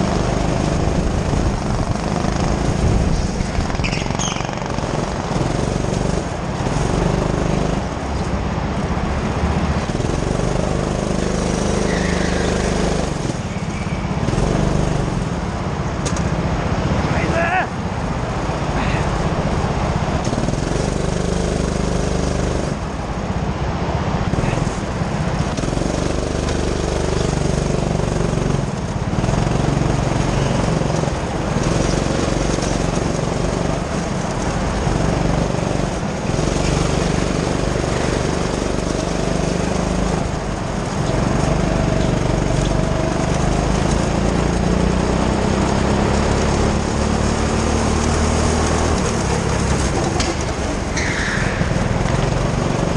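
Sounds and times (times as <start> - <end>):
go-kart engine revving: 0.0 - 52.9.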